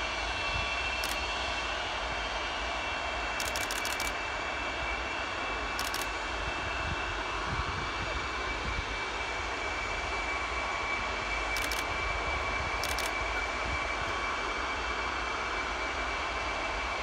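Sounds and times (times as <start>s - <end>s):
jet engines whining: 0.0s - 17.0s.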